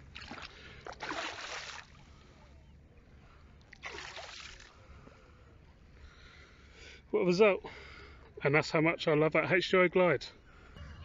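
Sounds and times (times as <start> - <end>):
water splashing: 0.0 - 2.3, 3.7 - 4.9.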